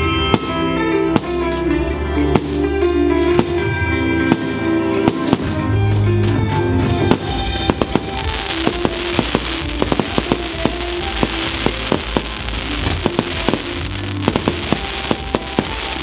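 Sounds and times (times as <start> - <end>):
firework bangs: 0.0 - 1.5, 3.4 - 16.0
loud music: 0.0 - 16.0
firework crackling: 7.1 - 16.0.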